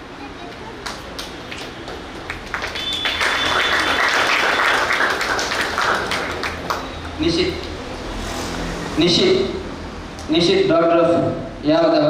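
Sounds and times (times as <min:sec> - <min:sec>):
audience applauding: 0:00.5 - 0:07.2.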